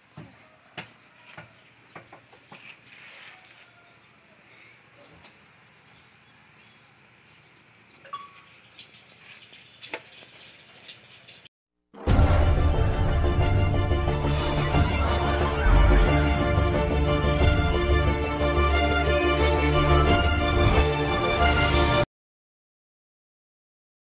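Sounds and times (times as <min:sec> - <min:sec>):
small birds chirping: 0:00.0 - 0:11.5.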